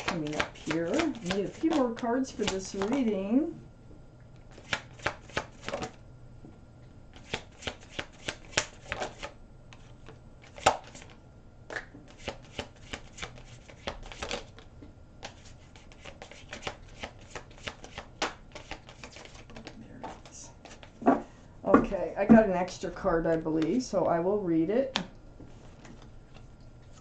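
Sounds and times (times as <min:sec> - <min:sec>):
cards being shuffled: 0:00.0 - 0:03.1, 0:04.5 - 0:06.0, 0:07.2 - 0:11.2, 0:12.1 - 0:21.0.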